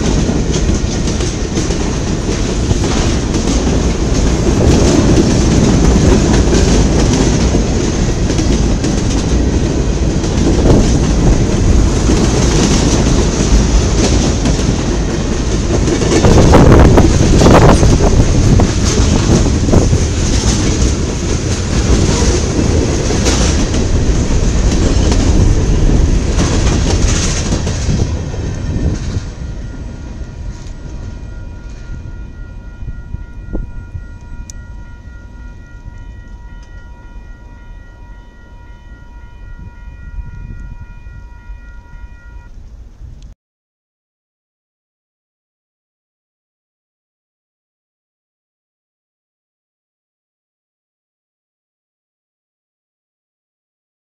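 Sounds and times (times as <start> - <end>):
freight train wheels on rails: 0.0 - 43.3
faint steady pitched tone: 29.4 - 42.6.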